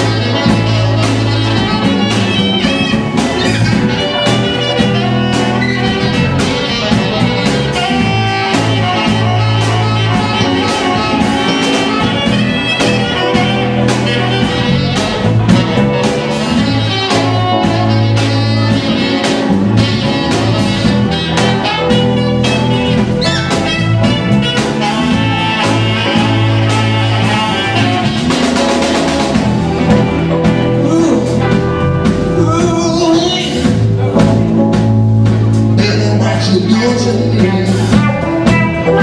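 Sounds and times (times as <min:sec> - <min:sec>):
alto saxophone lead: 0:00.0 - 0:34.5, 0:36.7 - 0:39.0
live blues-jazz band: 0:00.0 - 0:39.0.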